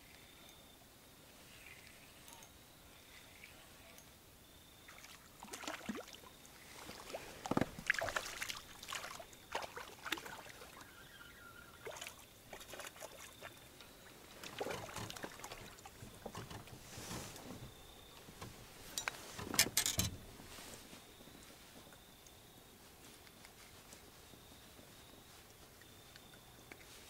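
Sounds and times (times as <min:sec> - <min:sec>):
water splashes: 0:04.9 - 0:16.8.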